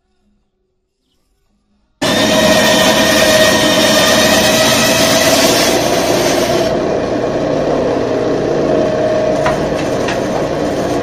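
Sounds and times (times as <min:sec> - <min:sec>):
band saw running free: 0:02.0 - 0:07.0, 0:07.8 - 0:11.0
band saw cutting wood: 0:02.0 - 0:11.0.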